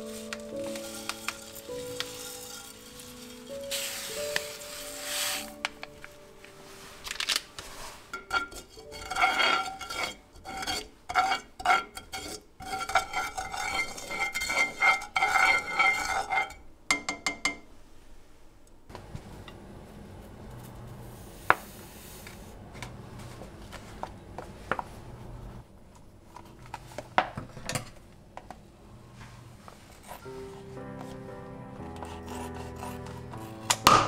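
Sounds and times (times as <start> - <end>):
chopstick scraping frying pan: 0.0 - 5.7, 7.7 - 16.6, 32.0 - 34.0.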